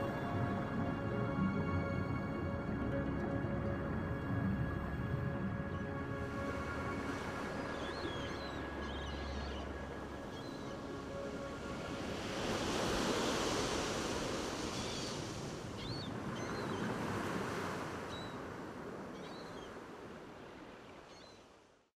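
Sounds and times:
ocean surf breaking: 0:10.6 - 0:19.1.

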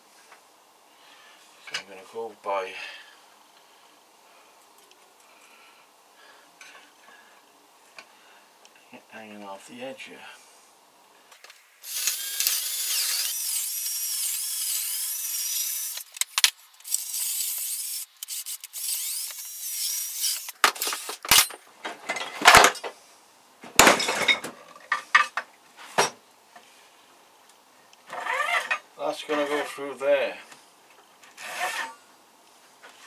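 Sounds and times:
high squeaking scrape on wood: 0:16.8 - 0:21.2, 0:28.1 - 0:28.8, 0:31.3 - 0:32.0.

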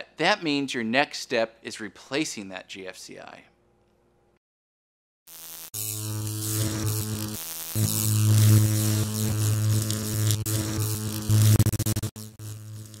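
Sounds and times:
electrical buzz with static: 0:05.3 - 0:13.0.

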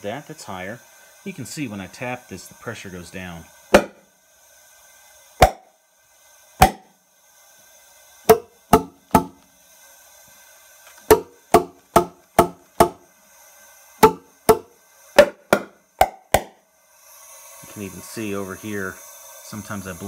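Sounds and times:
sharp metallic taps on engine: 0:08.3 - 0:09.4, 0:11.1 - 0:13.0, 0:14.0 - 0:16.6.

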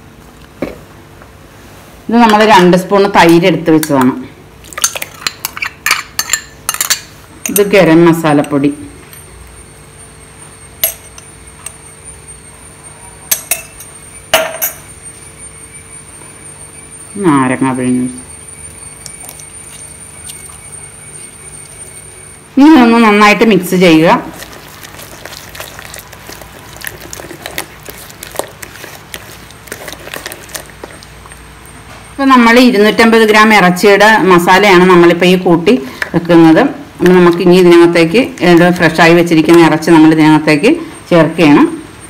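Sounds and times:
spoon and glass jars clinking: 0:04.7 - 0:07.8, 0:13.3 - 0:14.8
hand squelching marinade: 0:19.0 - 0:22.1, 0:23.8 - 0:31.6.

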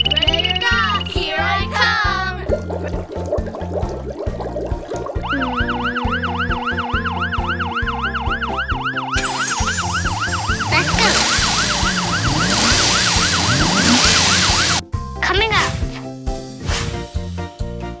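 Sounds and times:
emergency siren yelping: 0:05.1 - 0:14.8
rushing hiss: 0:11.3 - 0:14.8.

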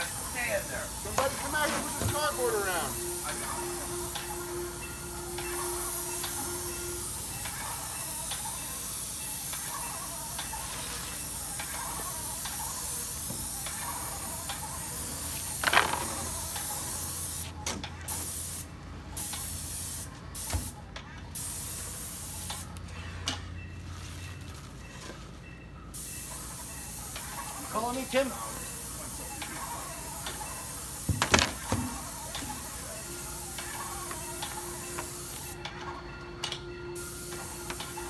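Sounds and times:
paint spray gun hissing: 0:05.4 - 0:17.5, 0:26.9 - 0:32.8.

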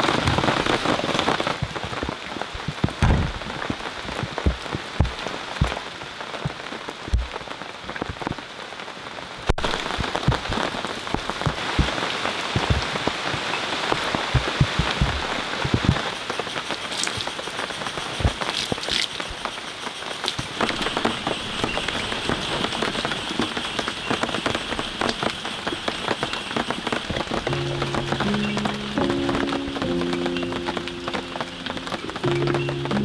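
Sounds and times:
large raindrops thudding: 0:00.0 - 0:33.0
rain hissing: 0:00.0 - 0:33.0.

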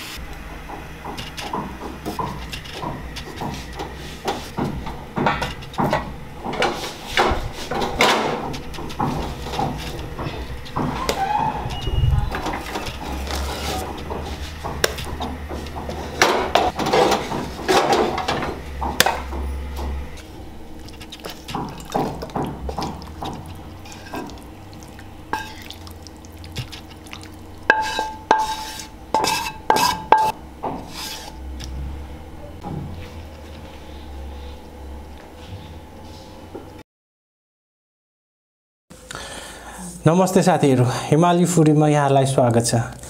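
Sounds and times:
metal dishes clinking: 0:21.0 - 0:25.9, 0:27.7 - 0:30.4.

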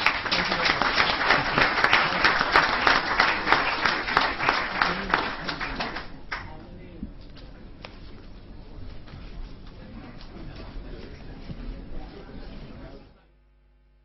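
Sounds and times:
audience applauding: 0:00.0 - 0:06.5.

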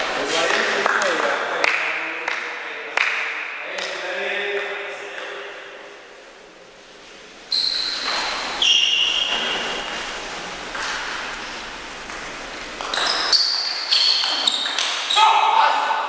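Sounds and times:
shoes squeaking on floor: 0:07.4 - 0:15.4.

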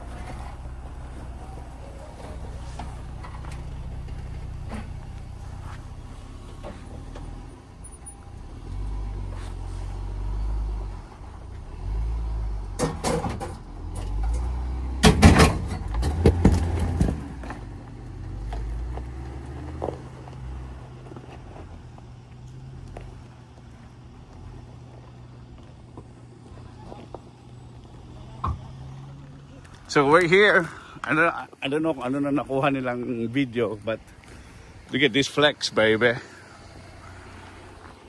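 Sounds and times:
vehicle engine and road rumble: 0:00.0 - 0:38.0
loud knocks and rattles: 0:15.0 - 0:17.3.

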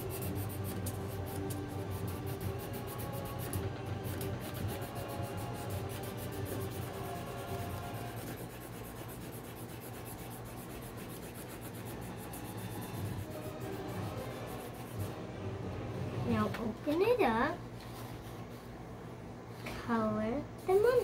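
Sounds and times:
marker scribbling on paper: 0:00.0 - 0:15.1.

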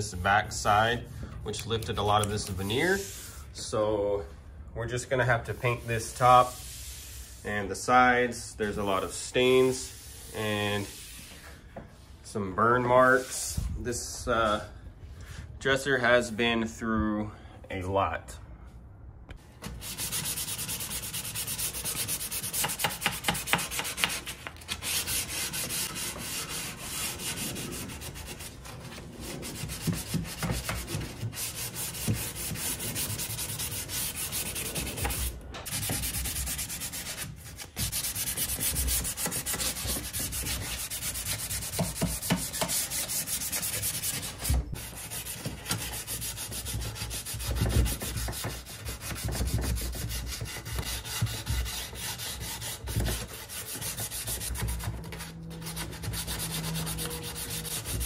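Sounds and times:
sandpaper rubbing on wood: 0:05.4 - 0:07.6, 0:19.8 - 0:58.0.

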